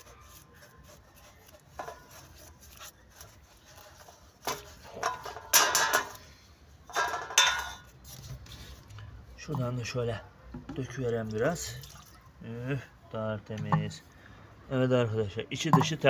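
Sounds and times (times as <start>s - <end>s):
sponge scrubbing metal pipe: 0.0s - 6.2s
liquid sloshing: 11.1s - 12.4s.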